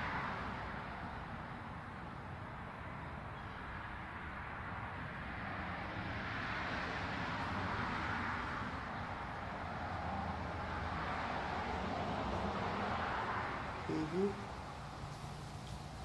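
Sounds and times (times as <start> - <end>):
outdoor hiss: 12.3 - 16.0.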